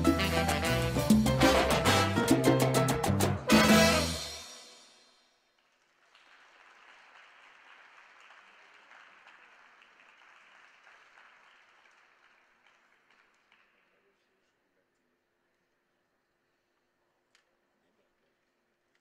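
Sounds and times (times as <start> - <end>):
music: 0.0 - 5.3
faint thin applause: 5.6 - 14.5.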